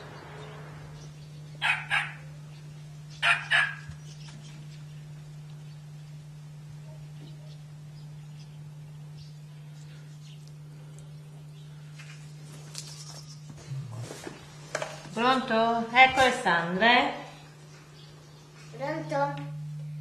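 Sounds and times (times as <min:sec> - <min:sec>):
steady low hum: 0:00.0 - 0:20.0
small dog barking: 0:01.6 - 0:02.3, 0:03.2 - 0:03.9.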